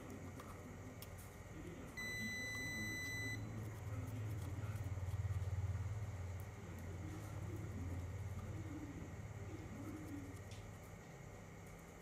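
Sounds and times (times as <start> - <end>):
electronic beep: 2.0 - 3.4.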